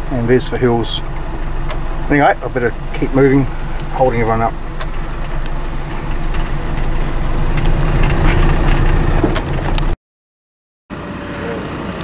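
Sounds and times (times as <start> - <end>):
engine and tyre rumble: 0.0 - 10.0, 10.9 - 12.0
knocks and rattles: 0.4 - 10.0.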